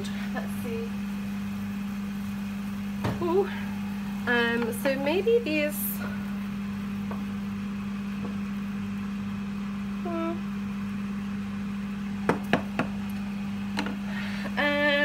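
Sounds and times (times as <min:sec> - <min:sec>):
steady low hum: 0:00.0 - 0:15.0
pans knocking on hob: 0:12.2 - 0:13.0.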